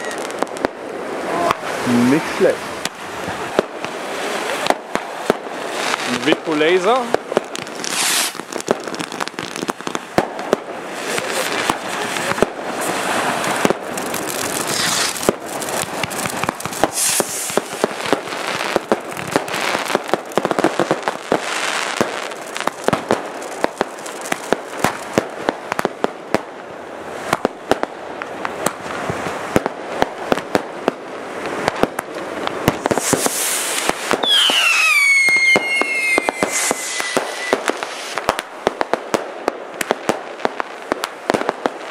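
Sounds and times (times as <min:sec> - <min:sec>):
whistling firework: 0:00.0 - 0:01.7, 0:07.4 - 0:23.2, 0:31.6 - 0:38.9
fireworks bangs and crackling: 0:00.0 - 0:41.9.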